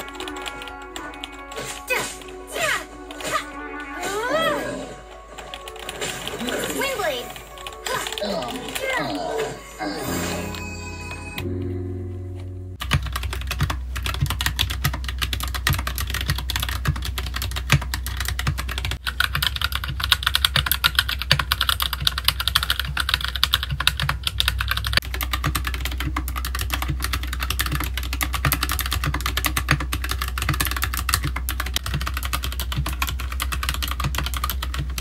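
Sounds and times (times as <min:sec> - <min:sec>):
mechanical keyboard typing: 0:00.0 - 0:01.9, 0:12.8 - 0:35.0.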